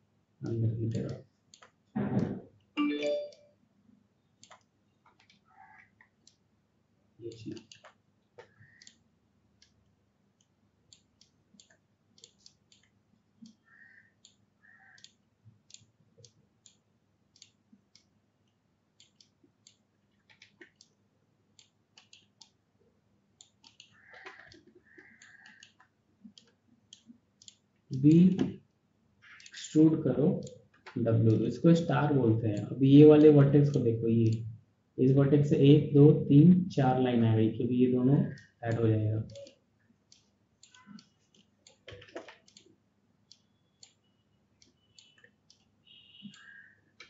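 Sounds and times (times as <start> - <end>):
mouse and keyboard clicks: 4.4 - 6.4, 7.3 - 9.0, 19.0 - 21.0, 23.4 - 28.6, 38.3 - 42.7.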